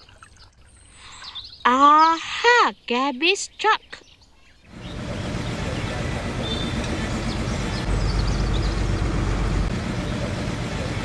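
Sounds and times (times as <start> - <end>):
garbage truck engine rumbling: 4.7 - 11.0.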